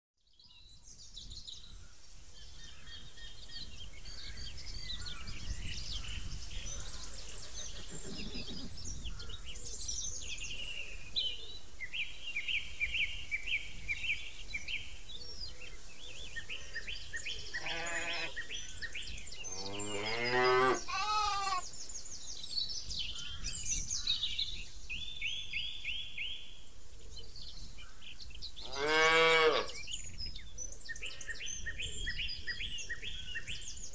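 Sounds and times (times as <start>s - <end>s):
small birds chirping: 0.2s - 33.9s
ram bleating: 17.6s - 18.4s, 19.8s - 21.6s, 28.7s - 29.7s.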